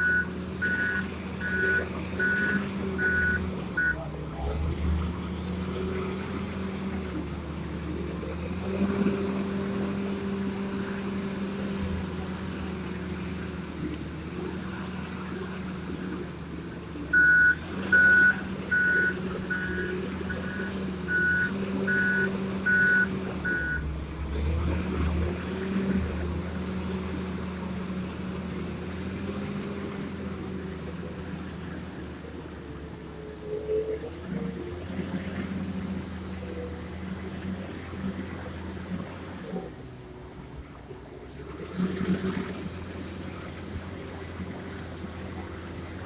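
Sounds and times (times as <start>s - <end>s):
reversing alarm beeps: 0.0s - 4.0s, 17.2s - 23.8s
wheel loader diesel engine: 0.0s - 46.0s.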